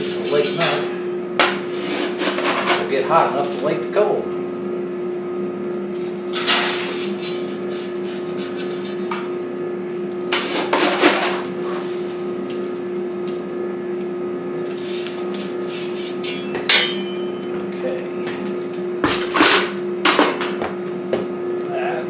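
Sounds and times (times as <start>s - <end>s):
metal scoop scraping coal: 0.0s - 4.2s, 6.0s - 9.3s, 10.2s - 13.2s, 14.6s - 16.5s
steady hum: 0.0s - 22.0s.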